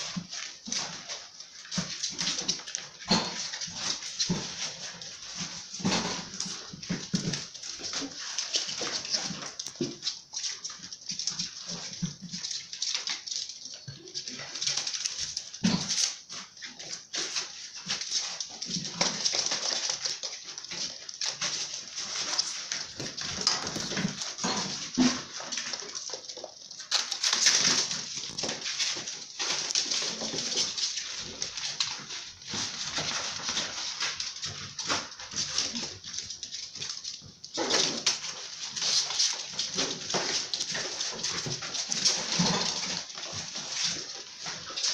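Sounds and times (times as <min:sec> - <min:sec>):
paws clicking and scuffling: 0:00.0 - 0:44.9
puppy noises: 0:00.0 - 0:44.9
puppies whimpering and yipping: 0:13.6 - 0:14.6.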